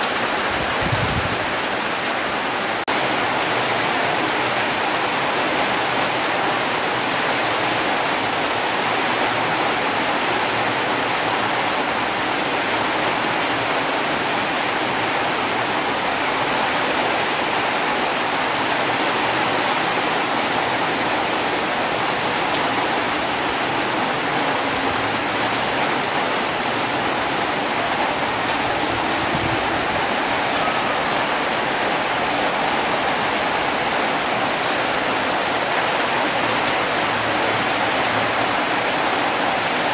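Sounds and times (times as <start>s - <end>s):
heavy rain falling: 0.0s - 39.9s.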